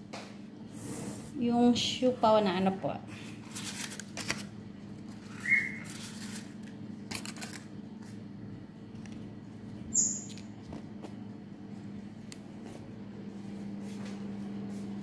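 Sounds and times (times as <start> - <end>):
steady low hum: 0.0 - 15.0
paper liners rustling: 3.4 - 4.5, 5.1 - 6.5
very high chirp: 9.9 - 10.3.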